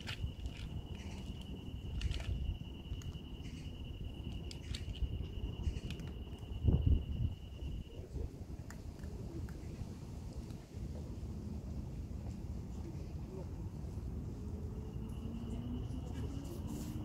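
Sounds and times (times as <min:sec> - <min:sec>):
insect trilling: 0:00.0 - 0:08.0.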